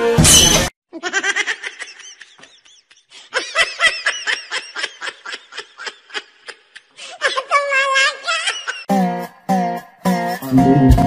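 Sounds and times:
person laughing: 0.9s - 8.9s.

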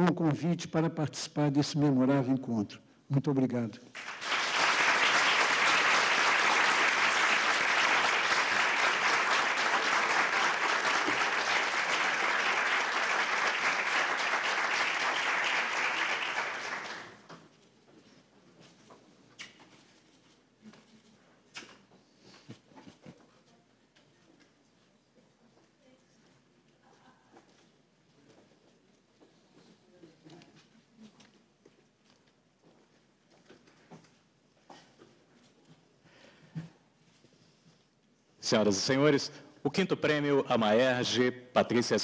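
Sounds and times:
audience applauding: 3.9s - 17.3s.

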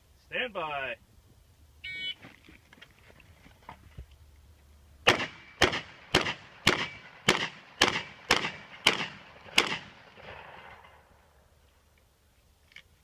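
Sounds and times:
rapid gunshots with echo: 5.1s - 10.4s.

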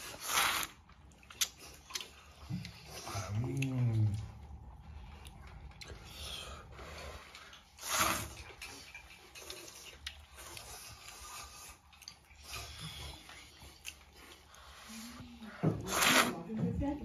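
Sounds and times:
man chewing: 0.0s - 15.0s
man slurping noodles: 7.8s - 8.5s.

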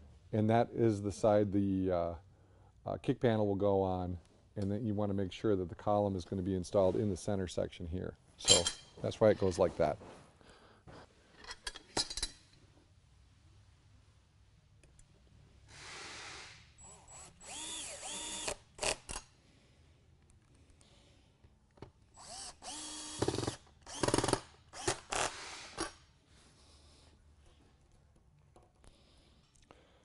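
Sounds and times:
cordless drill driving screws: 16.8s - 19.2s, 22.2s - 26.0s
drill clicks: 22.2s - 25.9s.

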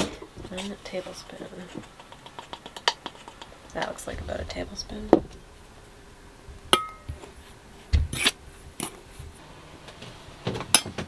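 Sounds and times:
spoon scraping flour in bowl: 1.0s - 3.5s.

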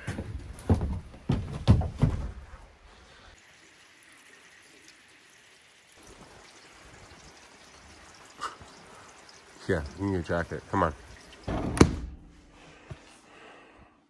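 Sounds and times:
steady rain falling: 3.3s - 11.5s.

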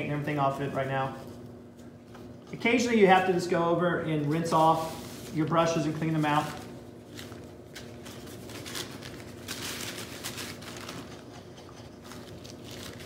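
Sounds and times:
paper towel crinkling: 4.3s - 11.3s, 12.0s - 13.0s.

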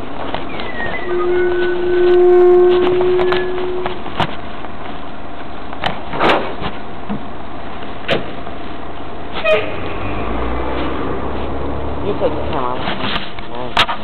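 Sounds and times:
held whine: 0.0s - 5.7s
garbage truck running: 0.0s - 14.0s
knocks and clanks of recyclables: 5.8s - 7.3s.

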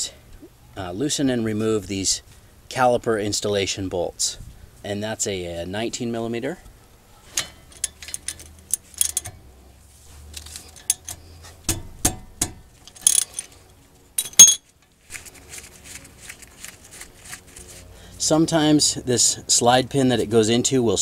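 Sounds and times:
sharp metal clanks: 7.3s - 9.4s, 10.7s - 13.5s, 14.2s - 14.7s
metal clinking: 7.3s - 9.5s, 10.4s - 14.9s.

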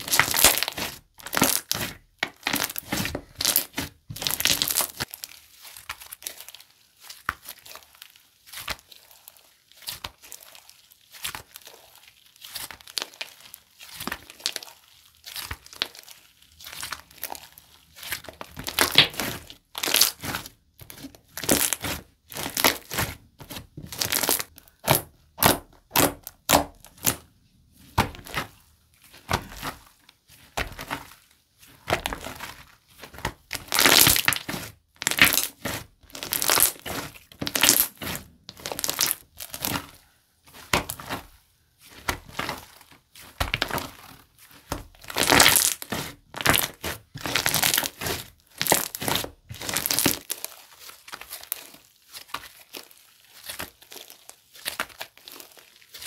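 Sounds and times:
slime being squeezed by hand: 33.5s - 40.0s, 45.0s - 56.0s.

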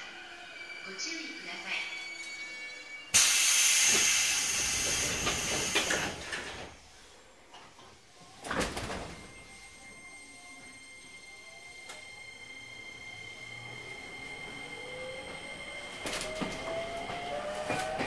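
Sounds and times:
pneumatic train door hiss: 3.1s - 6.8s.

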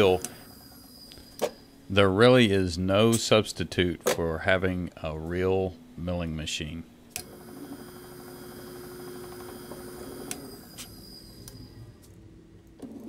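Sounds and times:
lathe humming and whining: 0.0s - 1.8s, 7.1s - 12.1s.

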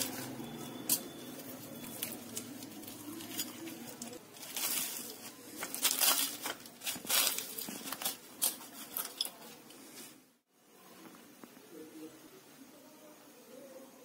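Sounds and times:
fried wrappers crunching: 0.0s - 9.7s.

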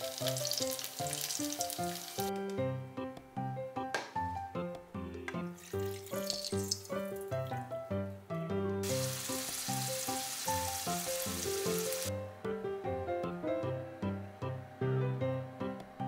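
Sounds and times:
food deep-frying in hot oil: 0.0s - 2.3s, 5.6s - 7.4s, 8.8s - 12.1s
light melodic background music: 0.0s - 16.0s.

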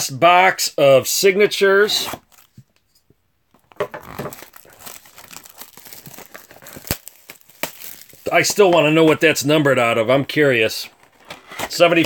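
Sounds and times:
plastic shrink-wrap crinkling and tearing: 3.6s - 9.4s.

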